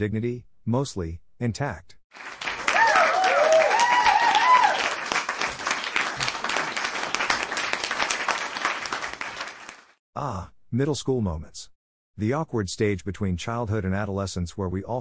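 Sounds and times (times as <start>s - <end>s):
audience applauding: 2.1s - 10.0s
whoops and cheers: 2.6s - 5.1s.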